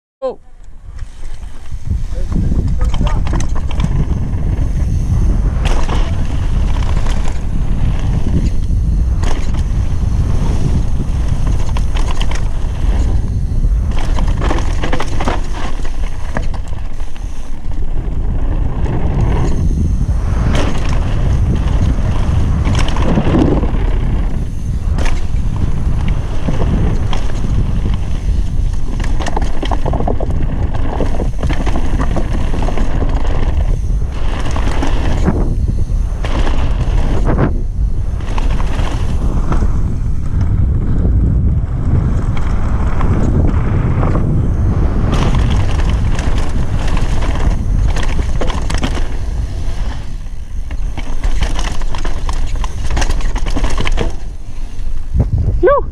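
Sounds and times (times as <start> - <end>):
wind on microphone: 0.2 - 55.9
bike rattling: 0.5 - 55.9.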